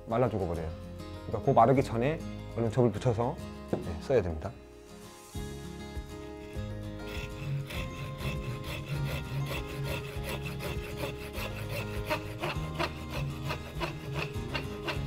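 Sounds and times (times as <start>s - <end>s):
hand saw rasping through wood: 6.4s - 15.0s.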